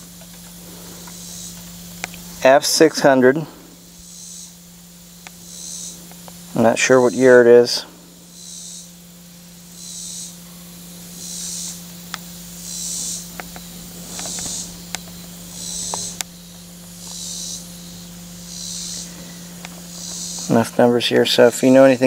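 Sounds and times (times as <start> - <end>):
insect buzzing pulse: 0.0 - 22.0.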